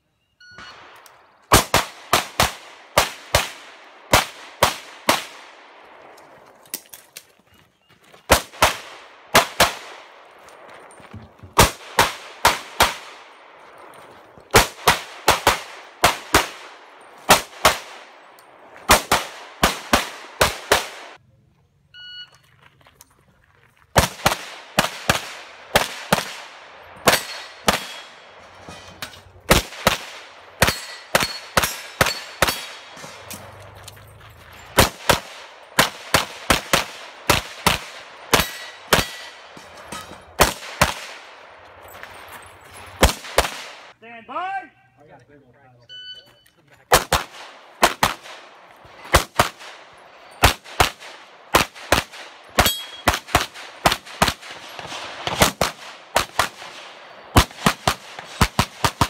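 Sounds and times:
rapid pistol fire: 0:14.6 - 0:16.7, 0:34.8 - 0:39.3, 0:46.9 - 0:49.8, 0:50.4 - 0:59.0.

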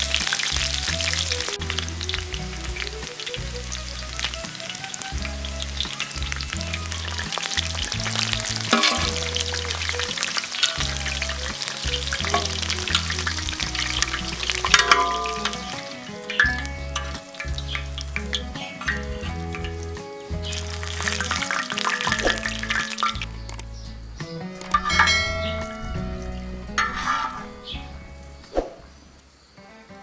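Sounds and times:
meat sizzling in hot oil: 0:00.0 - 0:28.8
background music with bass line: 0:00.0 - 0:29.1
metal spatula scraping pan: 0:08.6 - 0:19.8, 0:24.6 - 0:28.1.

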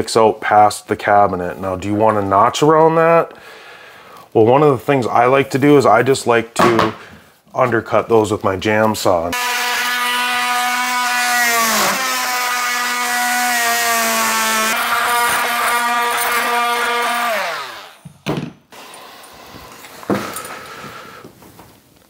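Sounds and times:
oscillating multi-tool buzzing: 0:09.4 - 0:18.0.

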